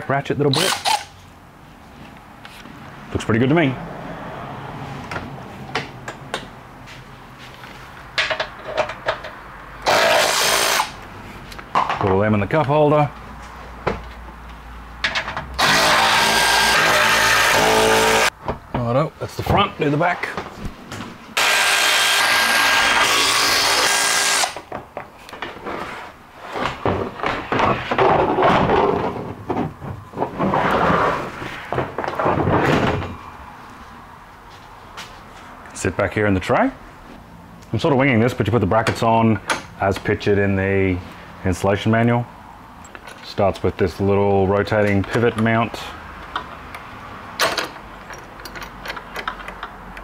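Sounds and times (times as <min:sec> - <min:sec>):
knocks and rattles: 0:26.5 - 0:33.2.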